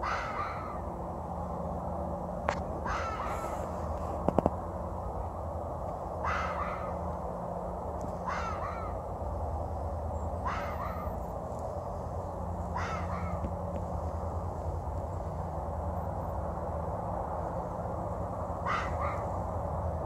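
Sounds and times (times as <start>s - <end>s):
fox barking: 0.0s - 0.8s, 6.2s - 7.0s, 8.3s - 9.0s, 10.4s - 11.2s, 12.7s - 13.4s, 18.6s - 19.4s.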